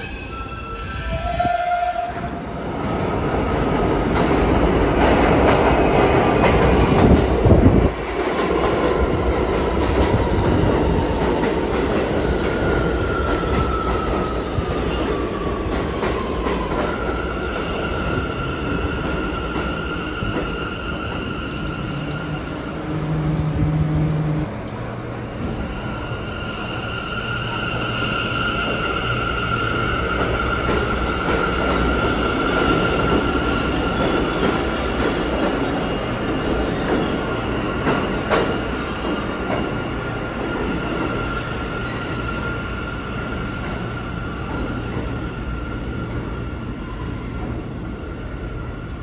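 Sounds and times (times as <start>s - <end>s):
train rumbling: 0.0s - 49.0s
train braking whine: 19.4s - 30.9s.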